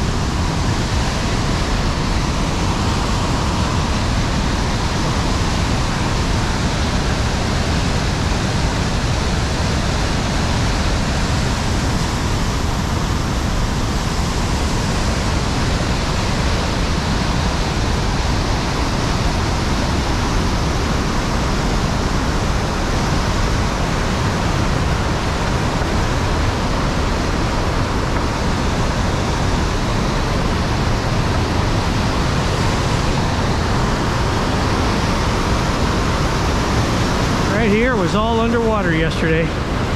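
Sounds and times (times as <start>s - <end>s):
waterfall rushing: 0.0s - 39.9s.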